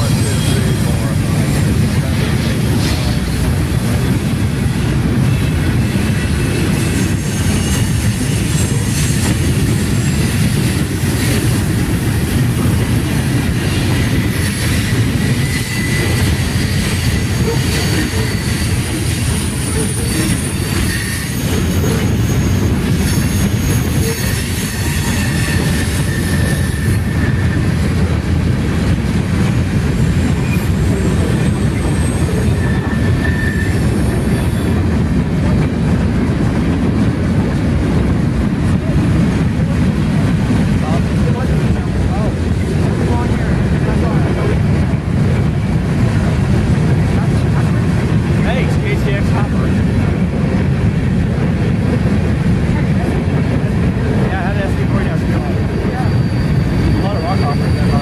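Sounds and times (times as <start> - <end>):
steel wheels rumbling on rail: 0.0 - 58.0
faint wheel squeals: 55.3 - 58.0.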